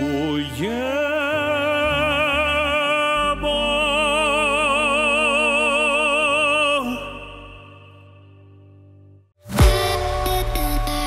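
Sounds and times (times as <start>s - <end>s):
man singing operatically: 0.0s - 8.3s
musical backing: 0.0s - 11.0s.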